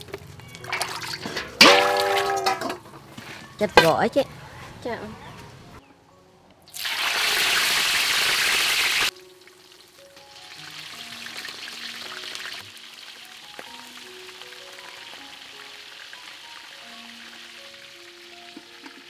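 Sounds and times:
fish sizzling in hot oil: 0:06.8 - 0:19.0
steady crackling sizzle: 0:06.8 - 0:19.0.

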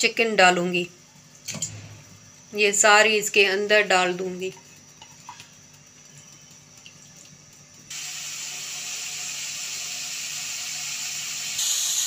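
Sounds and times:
chicken sizzling in hot oil: 0:04.2 - 0:12.0.

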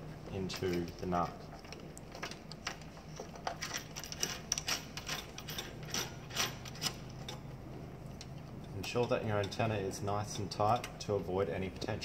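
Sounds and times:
antenna screwing clicks and scrapes: 0:01.5 - 0:07.5.

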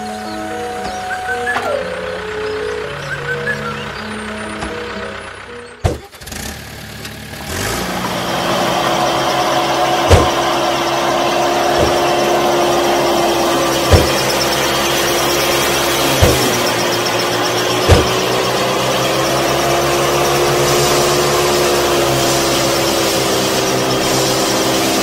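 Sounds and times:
tractor engine running: 0:00.0 - 0:25.0
sharp engine knock: 0:11.7 - 0:22.5.

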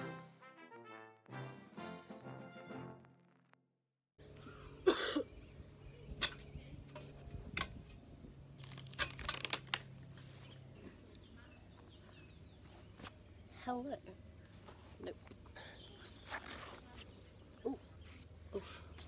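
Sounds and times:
garden chair and board clattering: 0:06.1 - 0:11.0.

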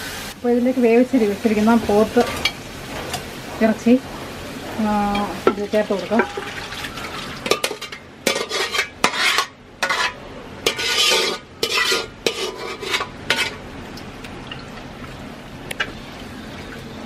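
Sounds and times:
low sizzle: 0:00.0 - 0:17.0
metal spoon scraping a pot: 0:06.1 - 0:13.6.

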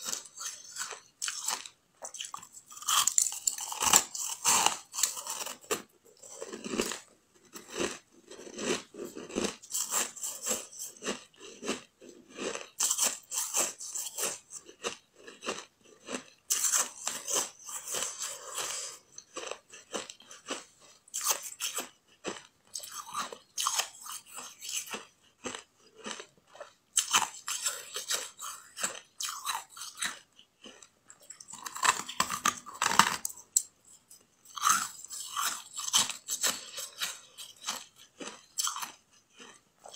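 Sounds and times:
chewing and crunching ice: 0:00.0 - 0:39.9.

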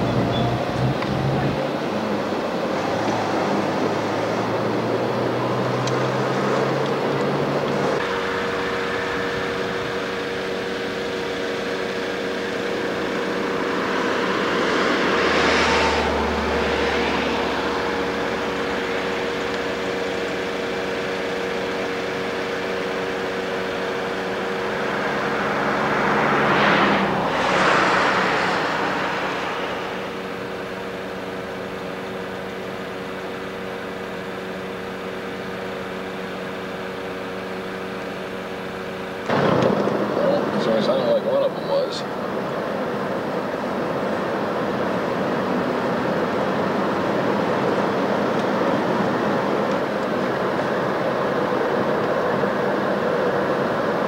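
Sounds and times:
vehicles whooshing past: 0:00.0 - 0:34.8
steady hum: 0:07.4 - 0:40.2.

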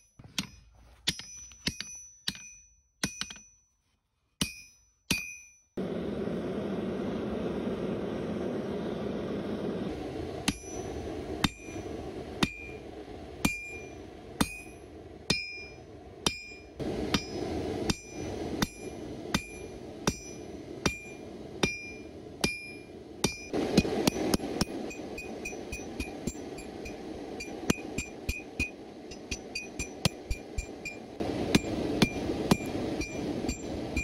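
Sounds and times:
hammer striking steel on anvil: 0:00.4 - 0:03.6, 0:04.4 - 0:05.7, 0:10.5 - 0:11.8, 0:12.4 - 0:12.8, 0:13.4 - 0:34.0
gas forge burner rushing: 0:05.8 - 0:34.0.

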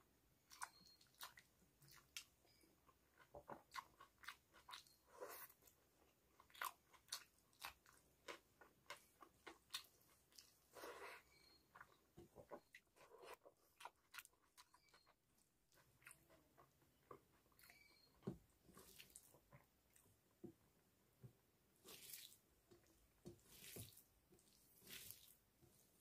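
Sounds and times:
person chewing: 0:00.5 - 0:18.1.

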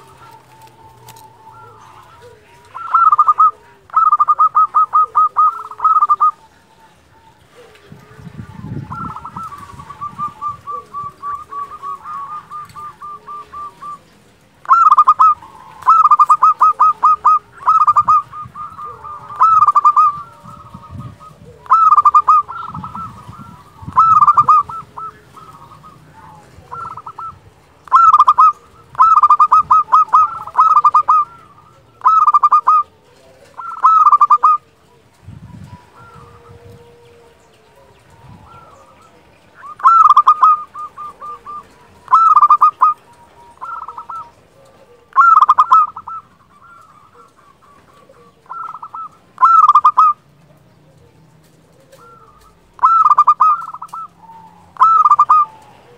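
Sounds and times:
dove cooing: 0:00.0 - 0:55.9.

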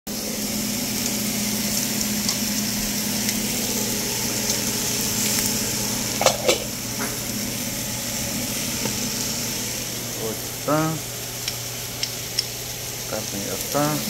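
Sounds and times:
vegetables sizzling in frying pan: 0:00.1 - 0:14.0
saucepan lid clacking: 0:06.2 - 0:06.7.

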